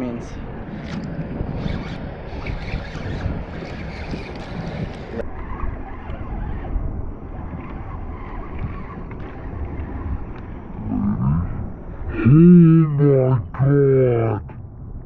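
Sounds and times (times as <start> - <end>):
wind on microphone: 0.0 - 15.0
water lapping around kayak: 0.4 - 12.2.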